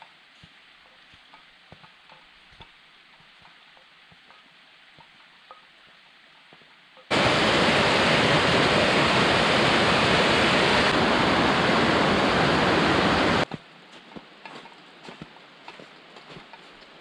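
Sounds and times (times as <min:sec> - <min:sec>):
water rushing over rocks: 0:07.1 - 0:13.5
footsteps crunching on snow: 0:13.4 - 0:17.0.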